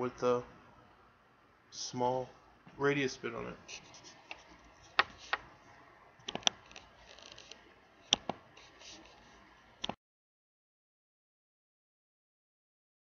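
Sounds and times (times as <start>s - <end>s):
faint light scraping: 8.5s - 9.5s.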